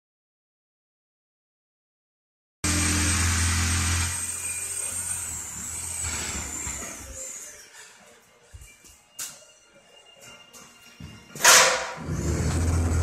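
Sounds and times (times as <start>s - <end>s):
machine humming and whining: 2.7s - 11.4s, 12.0s - 13.0s.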